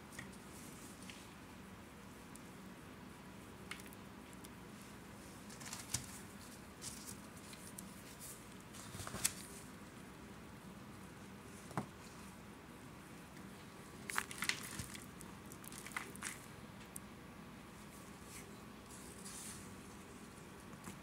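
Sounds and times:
faint steady hum: 0.0 - 21.0
cornstarch lumps crunching: 14.0 - 16.5.

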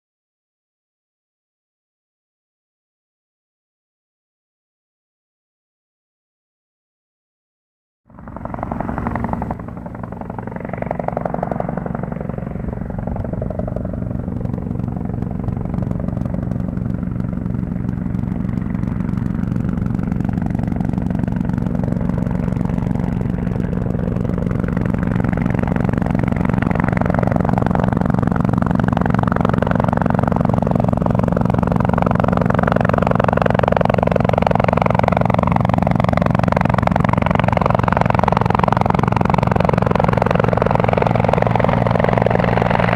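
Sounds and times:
helicopter rotor beating: 8.1 - 42.9.

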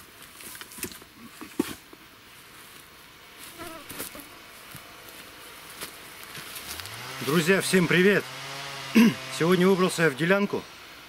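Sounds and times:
fly buzzing: 3.4 - 9.6.

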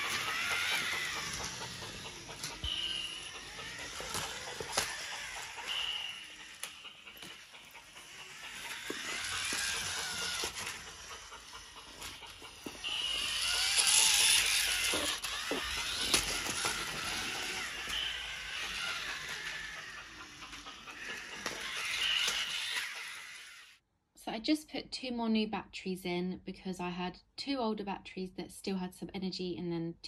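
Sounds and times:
toy train motor whirring: 0.0 - 23.8
wheels clicking on plastic track: 0.0 - 23.8.

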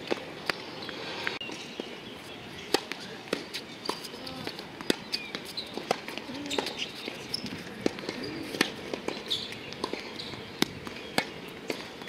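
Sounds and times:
tennis ball struck by racket: 2.7 - 12.0.

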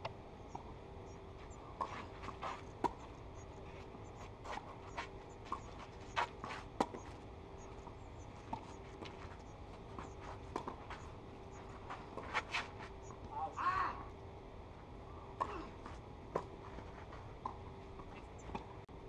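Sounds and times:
footsteps on clay: 1.4 - 13.3.

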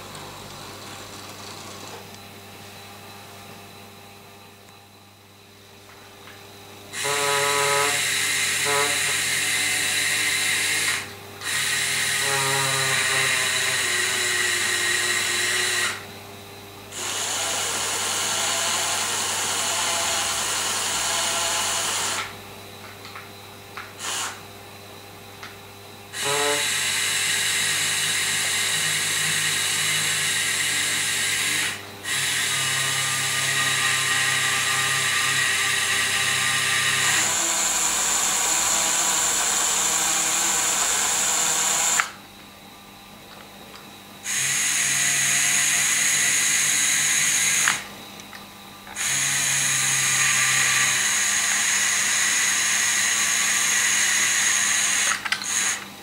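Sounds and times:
small electric motor whining: 6.9 - 16.1, 16.9 - 22.4, 24.0 - 24.4, 26.1 - 42.2, 44.2 - 47.9, 48.9 - 55.8.

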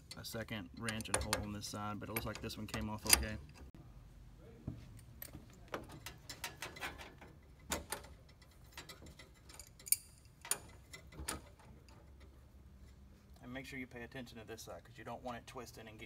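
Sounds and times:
wrench clicking on metal fittings: 0.0 - 3.6.

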